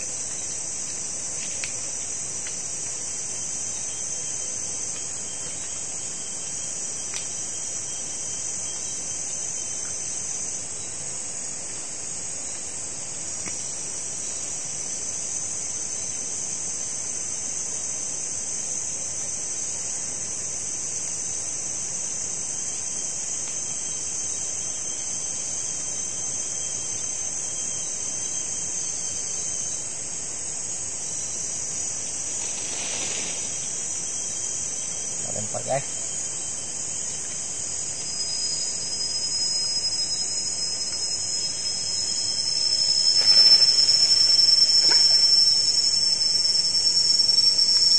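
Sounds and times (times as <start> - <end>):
insects trilling: 0.0 - 47.9.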